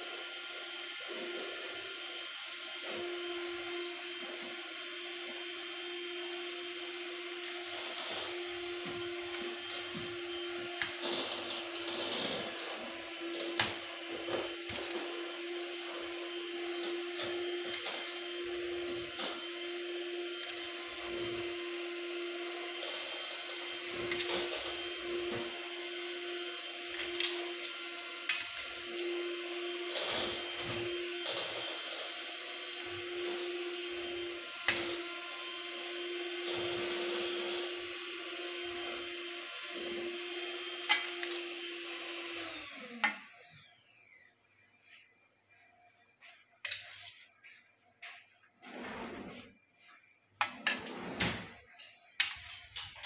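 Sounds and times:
spoon scraping rice: 46.6 - 47.3.

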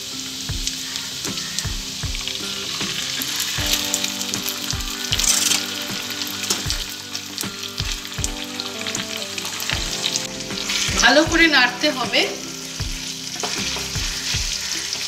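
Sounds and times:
greens sizzling in hot oil: 0.0 - 15.0.

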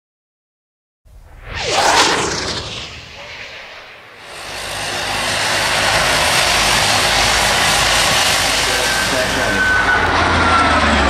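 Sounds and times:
whoosh with falling tone: 1.1 - 5.2
turboprop engines running: 1.6 - 11.0.

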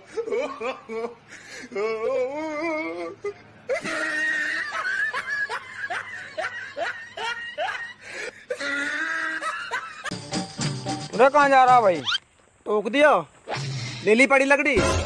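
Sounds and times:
person laughing: 0.0 - 10.2
music: 10.1 - 12.0, 14.8 - 15.0.

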